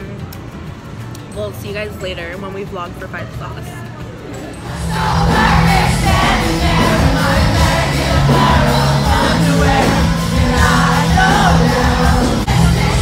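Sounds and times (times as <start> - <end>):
concert crowd: 4.6 - 13.0
live pop-rock music with singing: 4.6 - 13.0.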